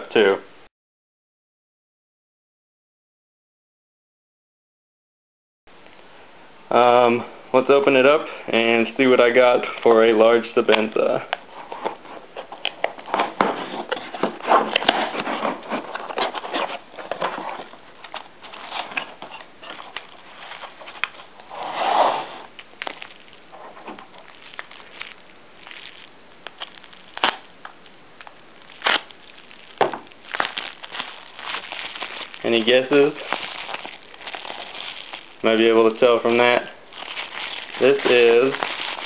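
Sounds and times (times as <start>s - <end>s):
newspaper rustling and crinkling: 8.9s - 27.5s, 28.2s - 39.0s
knife cutting bubble wrap: 10.6s - 27.5s, 28.7s - 35.3s, 37.0s - 39.0s
cardboard box pulled open: 21.4s - 22.5s.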